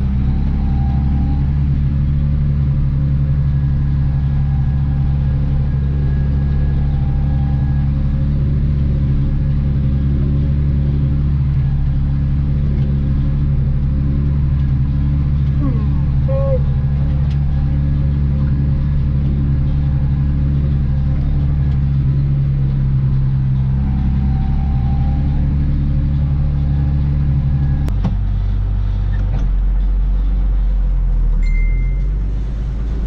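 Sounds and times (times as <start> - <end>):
tractor engine running: 0.0 - 33.0
short high beep: 31.4 - 32.3.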